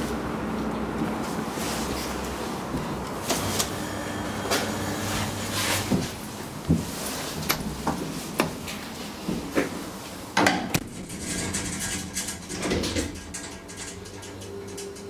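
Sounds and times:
elevator mechanical whir: 0:01.9 - 0:06.4, 0:10.8 - 0:15.0.

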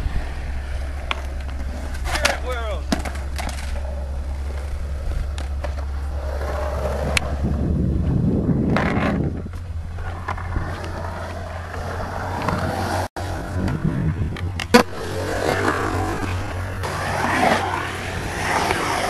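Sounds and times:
skateboard wheels rolling on concrete: 0:00.0 - 0:19.0
skateboard clacks: 0:00.9 - 0:06.0
low rumble: 0:02.9 - 0:18.9.

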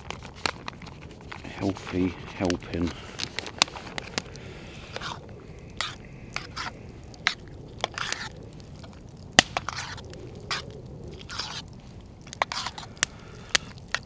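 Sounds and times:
spoon scraping metal pot: 0:05.8 - 0:06.8.

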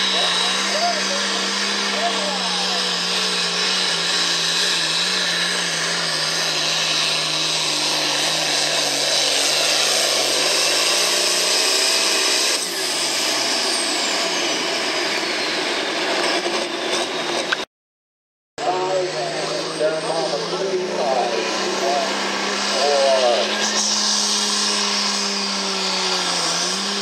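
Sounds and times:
tractor diesel engine under load: 0:00.0 - 0:13.0, 0:18.6 - 0:27.0
high turbo whistle: 0:21.3 - 0:27.0.

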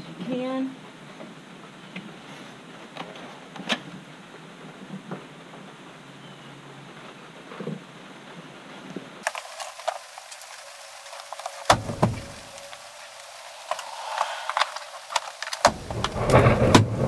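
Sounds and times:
steady hiss: 0:00.0 - 0:17.0
knocks and clicks of movement: 0:14.5 - 0:17.0.

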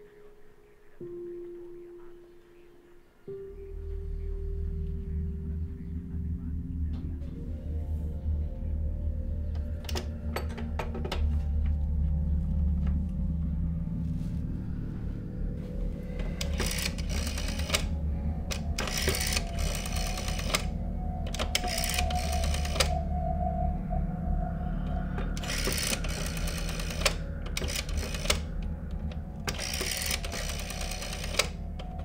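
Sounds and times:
low steady hum: 0:00.0 - 0:32.0
rotary dial clicking: 0:16.2 - 0:17.9, 0:18.5 - 0:20.7, 0:21.3 - 0:23.0, 0:25.4 - 0:32.0.

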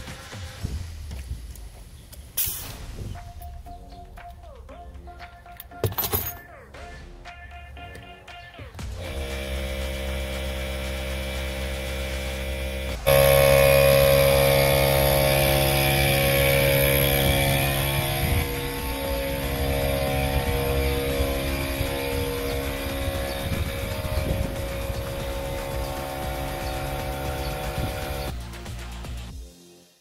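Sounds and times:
air compressor humming and whining: 0:09.0 - 0:28.4.

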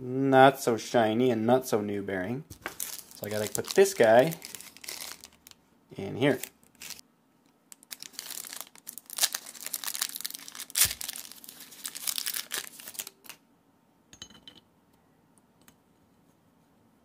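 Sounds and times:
plastic packaging crinkling and tearing: 0:02.6 - 0:05.6, 0:06.3 - 0:07.0, 0:07.7 - 0:13.4.

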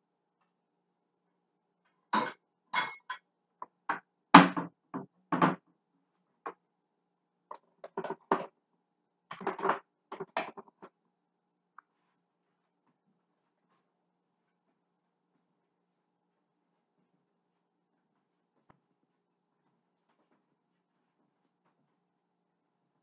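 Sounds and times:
dishes clattering: 0:02.2 - 0:03.2.

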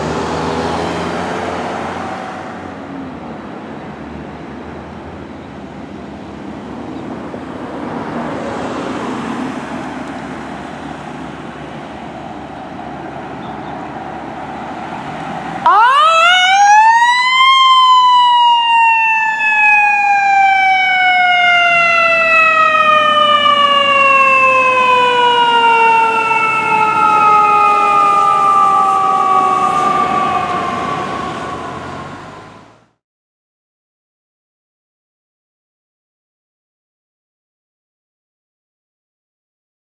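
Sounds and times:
road vehicle noise: 0:00.0 - 0:33.0
mechanical siren wailing: 0:15.6 - 0:32.8.

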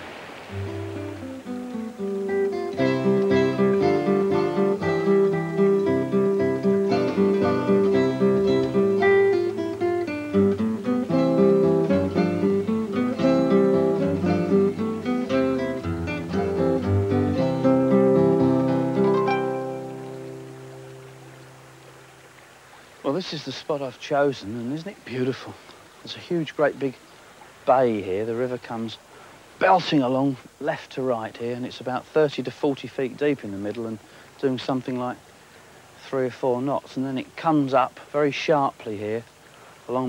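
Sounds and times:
acoustic guitar plucked notes: 0:00.5 - 0:22.1.

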